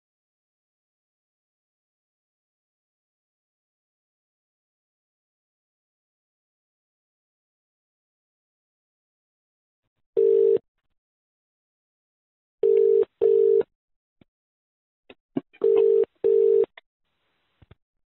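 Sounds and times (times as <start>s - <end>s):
telephone ringback tone: 10.2s - 10.6s, 12.6s - 13.6s, 15.6s - 16.7s.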